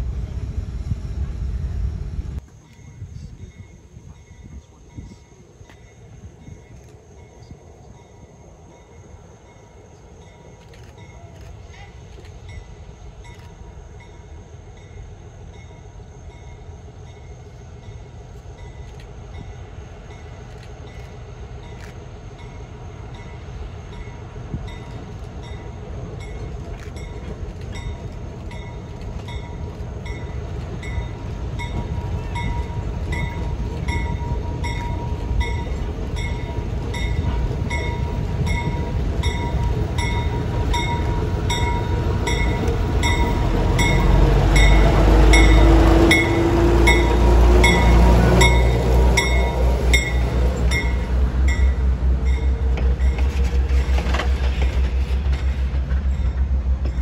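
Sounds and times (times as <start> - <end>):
diesel locomotive engine: 0.0 - 57.0
locomotive bell ringing: 12.4 - 53.8.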